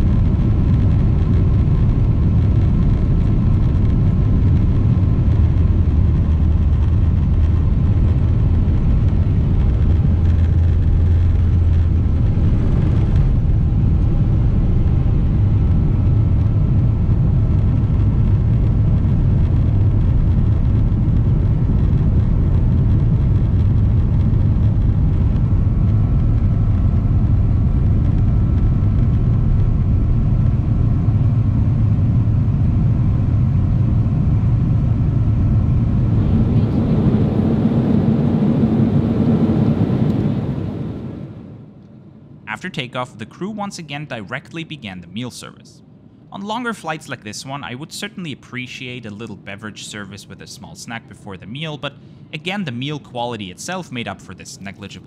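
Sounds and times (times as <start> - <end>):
jet engines rumbling in cabin: 0.0 - 55.0
airflow rushing: 7.8 - 16.4.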